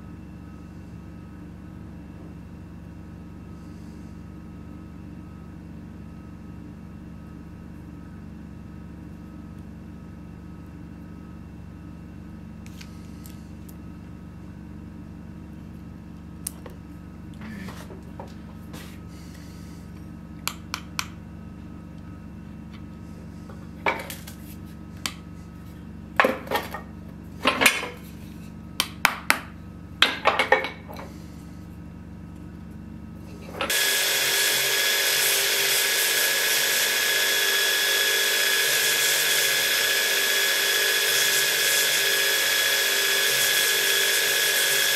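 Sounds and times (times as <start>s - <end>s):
low workshop hum: 0.0s - 44.9s
metal parts knocking on anvil: 30.0s - 31.0s
belt grinder running: 33.6s - 44.9s.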